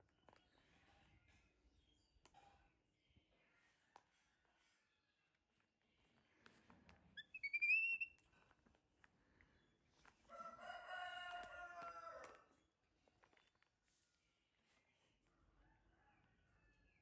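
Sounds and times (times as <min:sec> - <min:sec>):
high rising squeak: 0:07.2 - 0:08.2
rooster crowing: 0:10.3 - 0:12.5.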